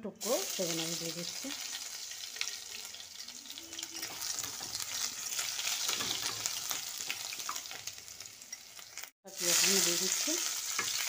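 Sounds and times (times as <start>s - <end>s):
garlic sizzling in hot oil: 0.1s - 11.0s
spatula stirring pan: 1.6s - 9.0s, 10.4s - 11.0s.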